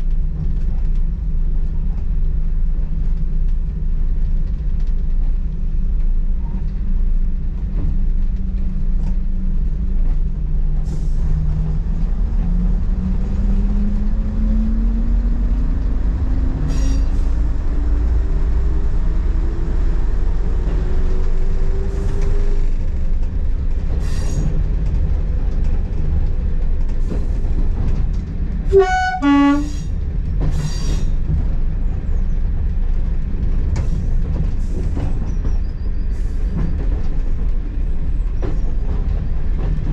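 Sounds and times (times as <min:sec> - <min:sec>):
diesel train engine rumbling: 0:00.0 - 0:39.9
two-tone train horn: 0:28.7 - 0:29.9.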